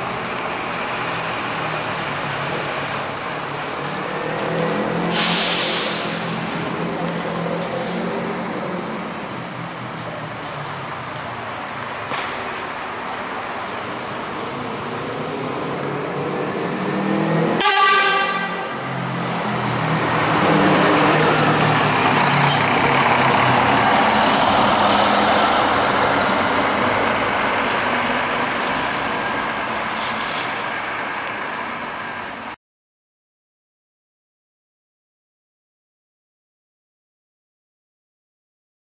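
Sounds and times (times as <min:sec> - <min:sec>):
bus diesel engine passing: 0:00.0 - 0:32.6
bus horn: 0:17.5 - 0:18.9.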